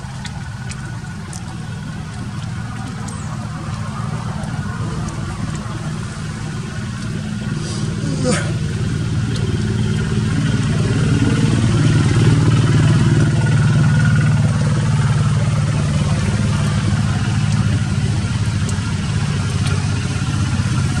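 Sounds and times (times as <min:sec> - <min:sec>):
engine running with low hum: 0:00.0 - 0:21.0.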